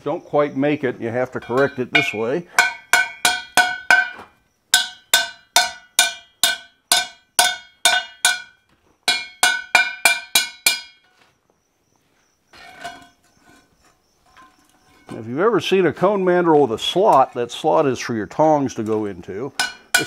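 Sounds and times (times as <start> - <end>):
hammer striking hot steel ring: 1.4 - 11.1, 19.6 - 20.0.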